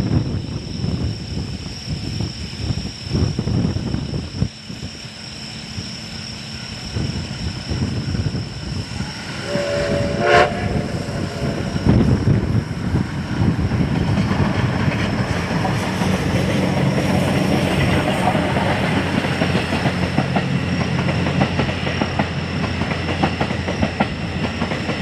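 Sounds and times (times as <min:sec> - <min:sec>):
train rumble: 0:00.0 - 0:25.0
steam locomotive whistle: 0:08.8 - 0:12.3.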